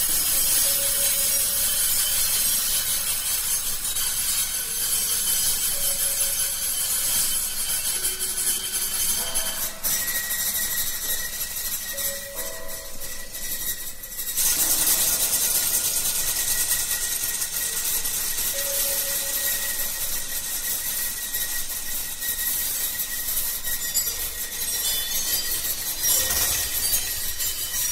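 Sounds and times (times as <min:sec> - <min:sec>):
rasping scraping noise: 0:00.0 - 0:27.9
faint high steady tone: 0:18.4 - 0:20.2.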